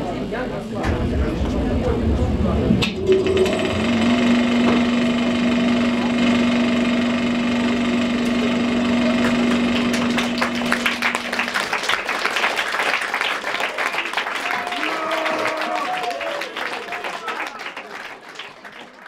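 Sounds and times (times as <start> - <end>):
loud low drone: 0.8 - 11.8
audience applause: 8.2 - 19.0.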